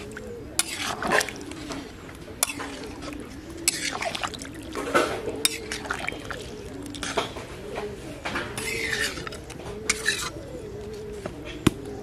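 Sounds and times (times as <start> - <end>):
dove cooing: 0.0 - 12.0
metal spatula scraping pan: 0.6 - 1.7, 2.4 - 3.1, 3.7 - 4.2, 5.0 - 6.0, 8.6 - 10.4.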